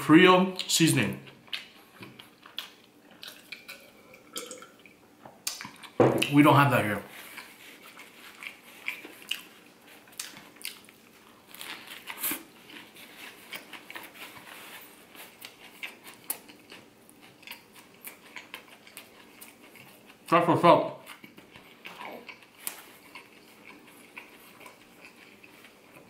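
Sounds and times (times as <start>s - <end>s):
crunchy bread biting and chewing: 7.2s - 20.3s, 21.0s - 26.0s.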